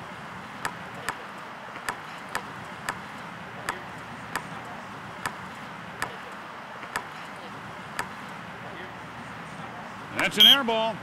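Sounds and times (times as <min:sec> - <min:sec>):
basketball bouncing on asphalt: 0:00.6 - 0:04.6, 0:05.2 - 0:07.2, 0:07.9 - 0:08.2.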